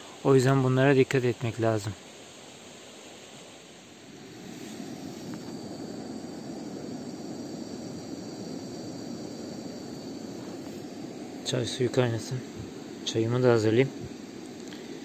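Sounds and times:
faint steady hiss: 0.0s - 15.0s
gas stove burner rushing: 4.1s - 15.0s.

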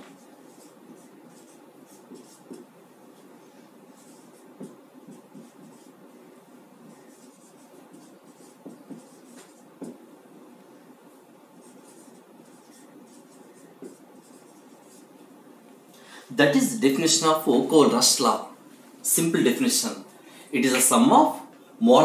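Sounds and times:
marker squeaking on whiteboard: 0.0s - 2.7s, 4.0s - 6.0s, 6.8s - 10.0s, 11.6s - 15.2s
marker tip tapping board: 8.0s - 10.0s.

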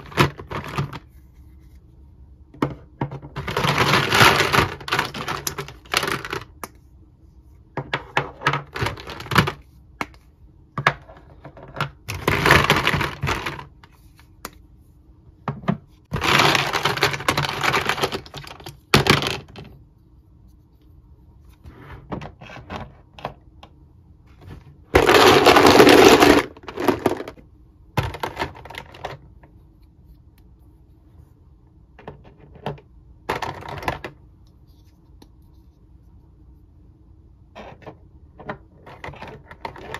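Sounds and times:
plastic toy parts clattering: 0.0s - 1.1s, 2.6s - 6.6s, 7.8s - 9.6s, 10.9s - 13.8s, 16.1s - 19.7s, 25.0s - 27.4s, 28.0s - 29.3s, 32.0s - 34.2s, 37.6s - 39.9s.

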